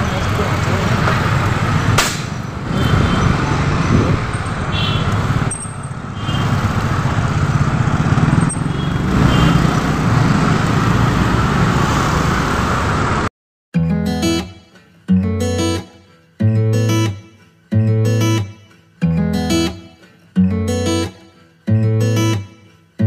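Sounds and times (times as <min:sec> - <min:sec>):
road traffic rumble: 0:00.0 - 0:13.3
sharp click: 0:02.0 - 0:02.4.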